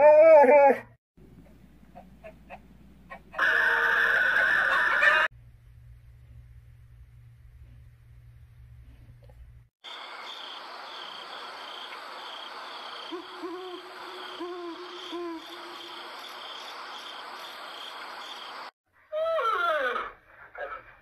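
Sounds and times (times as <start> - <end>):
insects chirping: 9.8 - 18.7
owl hooting: 13.0 - 16.3.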